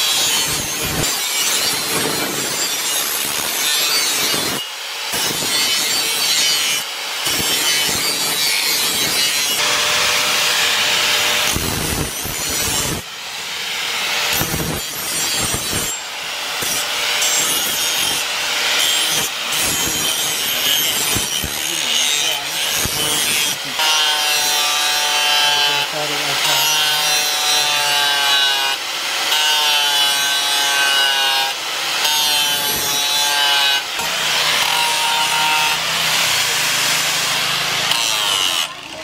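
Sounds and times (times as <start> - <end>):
angle grinder grinding steel: 0.0 - 39.0.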